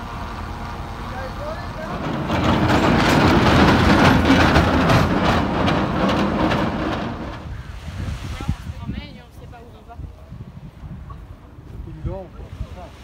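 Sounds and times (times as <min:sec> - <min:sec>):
cable car wheels rumbling on rails: 0:00.0 - 0:07.7.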